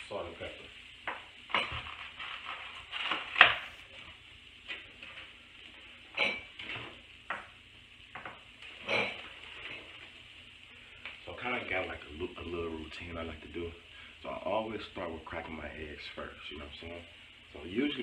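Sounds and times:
sausages sizzling in a pan: 0:00.0 - 0:18.0
eggs and items knocking on countertop: 0:03.4 - 0:03.8.

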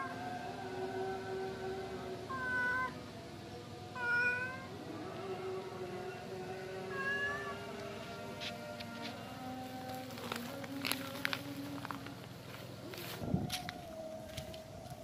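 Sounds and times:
steady hum: 0:00.0 - 0:15.0
cat meowing: 0:04.0 - 0:04.7, 0:06.9 - 0:07.6.

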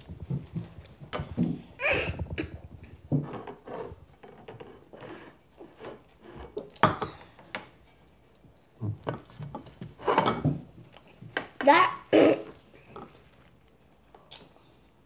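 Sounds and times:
tableware clattering on wooden table: 0:05.8 - 0:07.8, 0:08.8 - 0:10.7, 0:12.8 - 0:13.3.

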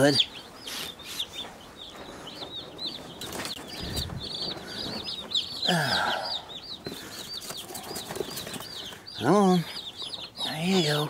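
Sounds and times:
chicks peeping: 0:00.0 - 0:11.0.

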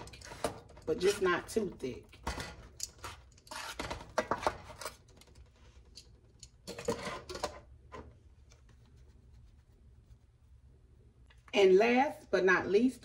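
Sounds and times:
metal tongs scraping pan: 0:00.0 - 0:01.5, 0:02.2 - 0:05.0.

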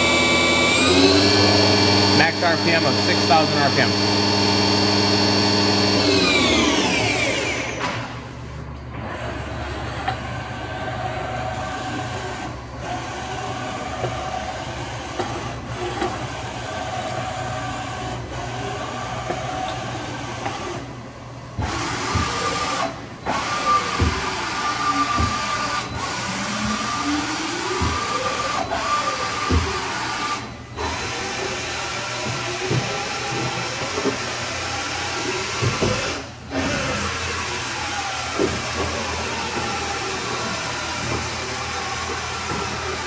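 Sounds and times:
machining center spindle whine: 0:00.0 - 0:08.9, 0:21.8 - 0:43.0.

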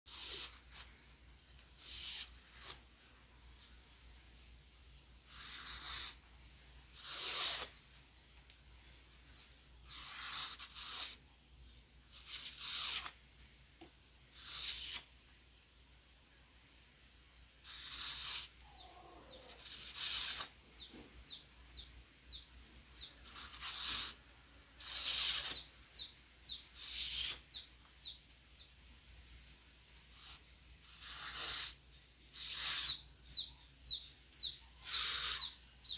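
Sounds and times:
knife scraping cane strip: 0:00.1 - 0:01.0, 0:01.8 - 0:02.9, 0:05.3 - 0:06.2, 0:06.9 - 0:07.8, 0:09.9 - 0:11.2, 0:12.1 - 0:13.2, 0:14.4 - 0:15.1, 0:17.6 - 0:18.5, 0:19.5 - 0:20.6, 0:23.2 - 0:24.2, 0:24.8 - 0:25.7, 0:26.8 - 0:27.6, 0:30.2 - 0:33.0, 0:34.8 - 0:35.6
bird chirping: 0:00.1 - 0:13.1, 0:17.2 - 0:24.2, 0:24.8 - 0:28.8, 0:30.1 - 0:35.9.

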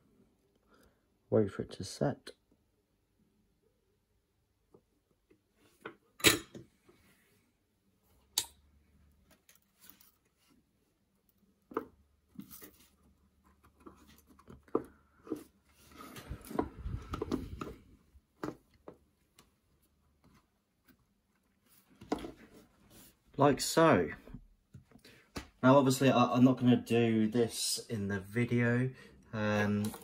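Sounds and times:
wires rustling and handling noise: 0:08.1 - 0:23.4, 0:29.5 - 0:30.0.

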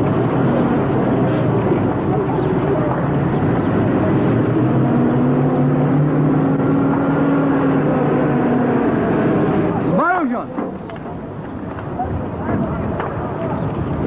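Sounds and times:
engine drone: 0:00.0 - 0:11.4.

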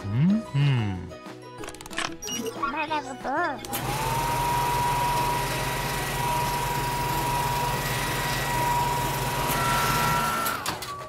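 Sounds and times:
air dryers blowing with whine: 0:03.7 - 0:10.5.

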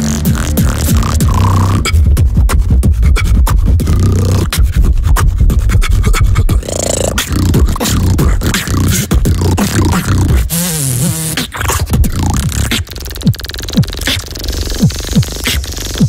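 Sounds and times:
deep lip-roll buzz: 0:00.0 - 0:16.0
person beatboxing: 0:00.0 - 0:16.0
sharp beatbox clicks and snares: 0:00.0 - 0:16.0.

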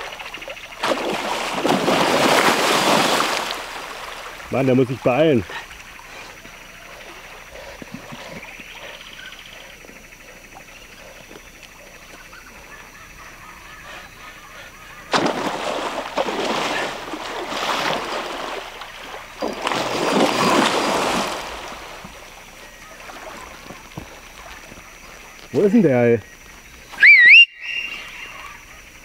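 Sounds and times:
fish thrashing and splashing: 0:00.0 - 0:08.5, 0:15.1 - 0:25.4.

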